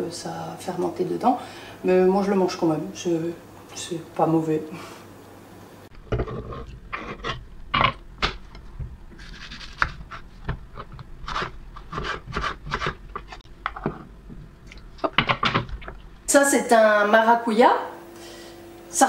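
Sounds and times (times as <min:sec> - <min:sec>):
knife scraping cutting board: 0:06.0 - 0:08.0, 0:09.1 - 0:14.0.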